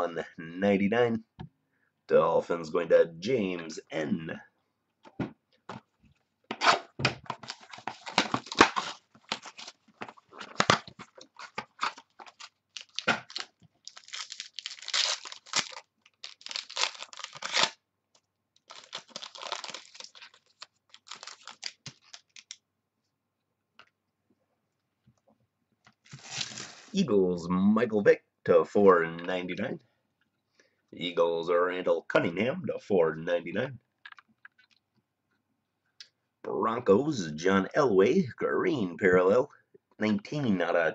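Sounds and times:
cards clicking and rustling: 6.5 - 17.8
card pack wrapper tearing: 7.4 - 17.8, 18.6 - 22.6, 26.1 - 27.0.

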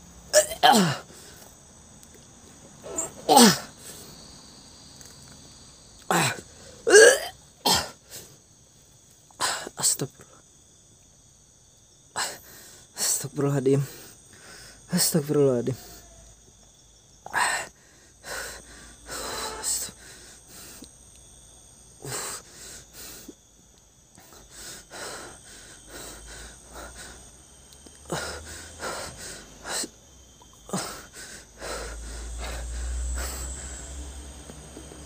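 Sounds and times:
night insects chirring: 0.0 - 35.0
man breathing heavily and wheezing: 6.1 - 6.9, 12.2 - 15.0, 17.2 - 21.2, 21.8 - 23.4, 24.1 - 35.0.

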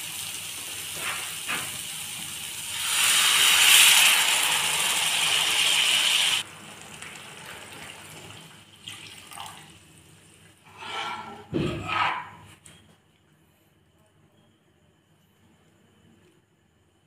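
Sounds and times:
liquid hissing in hot pan: 0.0 - 6.5
spatula scraping pan: 10.7 - 12.4.

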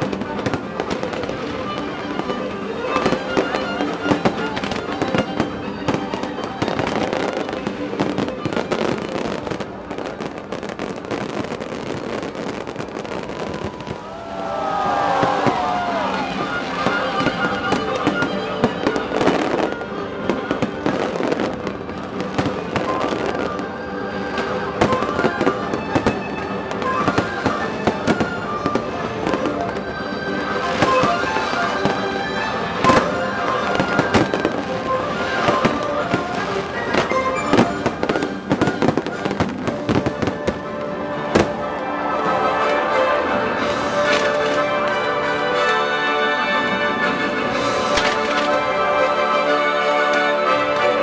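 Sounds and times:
fireworks bangs and crackling: 0.0 - 45.8, 47.4 - 49.2
fireworks whistles: 22.3 - 29.8, 30.5 - 40.6.

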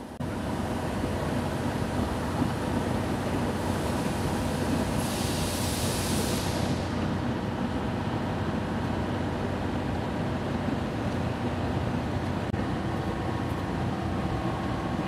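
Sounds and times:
diesel locomotive engine rumble: 0.0 - 15.0
air hissing: 3.5 - 7.0.

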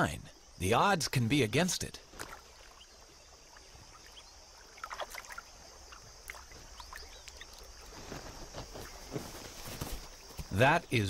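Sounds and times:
feet squelching in water and mud: 2.0 - 10.3
soft splashes: 2.0 - 10.5.

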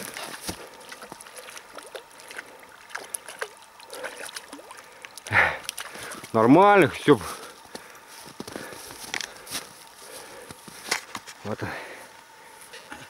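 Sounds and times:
fish splashing at water surface: 0.0 - 6.3.

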